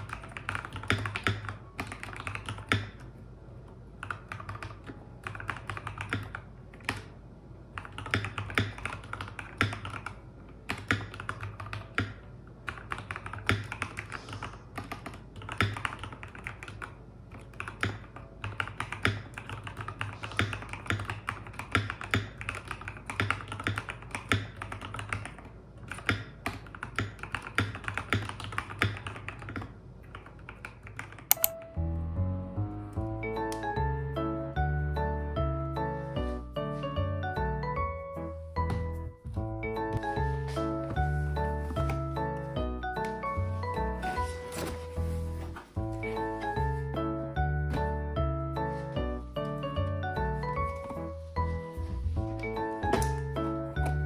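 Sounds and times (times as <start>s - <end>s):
mechanical keyboard typing: 0.0s - 3.1s, 4.0s - 31.6s.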